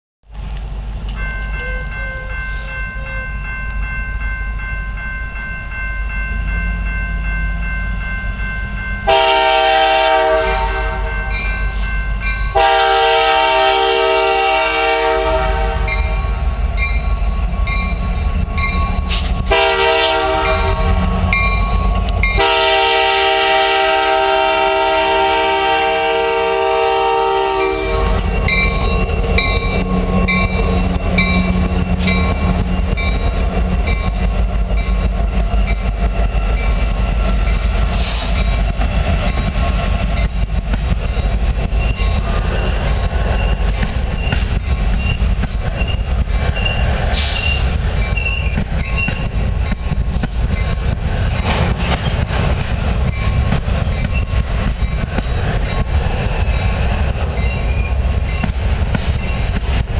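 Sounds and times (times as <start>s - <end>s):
diesel locomotive engine rumbling: 0.2s - 59.9s
crossing signal bell dinging: 1.1s - 13.6s, 15.0s - 24.8s, 26.2s - 46.1s
train horn blasts: 9.0s - 11.9s, 12.5s - 16.3s, 19.1s - 21.3s, 22.3s - 28.8s.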